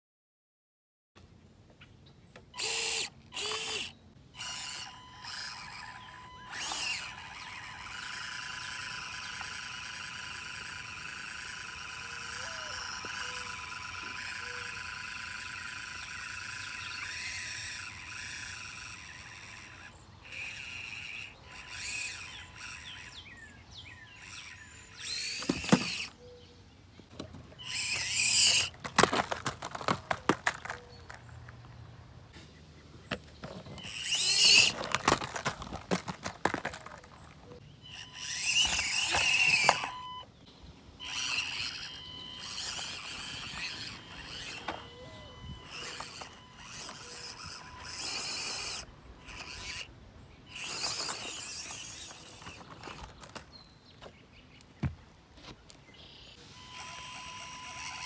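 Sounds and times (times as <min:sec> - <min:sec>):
small electric motor whining: 0:02.6 - 0:26.2, 0:27.5 - 0:31.2, 0:33.4 - 0:40.2, 0:41.0 - 0:53.4, 0:56.4 - 0:58.0
plastic toy truck clattering: 0:27.2 - 0:31.6, 0:33.4 - 0:37.6.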